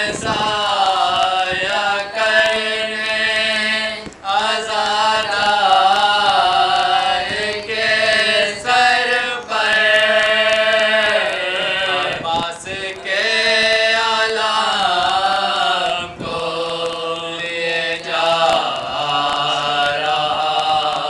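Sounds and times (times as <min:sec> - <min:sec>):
men chanting a mourning elegy: 0:00.0 - 0:21.0.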